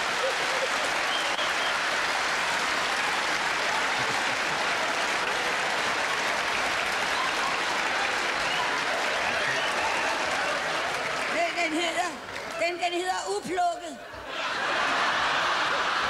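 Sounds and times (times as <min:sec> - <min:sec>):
audience laughing: 0:00.0 - 0:02.1, 0:03.7 - 0:05.1, 0:14.0 - 0:16.0
audience applauding: 0:00.0 - 0:12.8.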